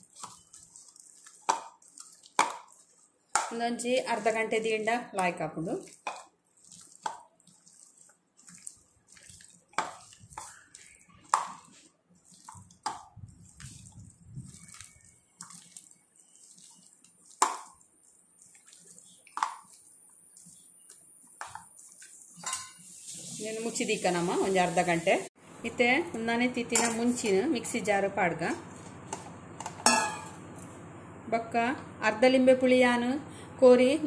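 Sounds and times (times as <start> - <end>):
hands kneading wet chicken: 0.0 - 22.4.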